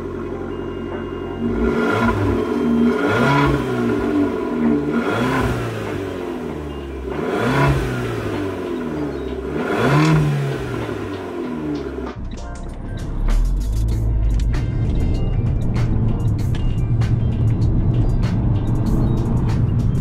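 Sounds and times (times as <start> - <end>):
car engine revving: 1.4 - 12.2.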